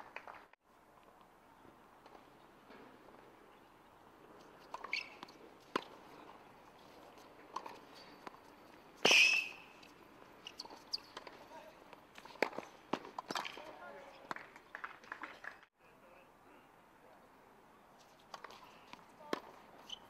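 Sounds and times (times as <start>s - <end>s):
shoes squeaking on court: 4.4s - 13.7s, 18.0s - 20.0s
racket hitting tennis ball: 4.6s - 6.4s, 7.0s - 8.4s, 9.0s - 9.8s, 12.0s - 13.7s, 18.3s - 20.0s.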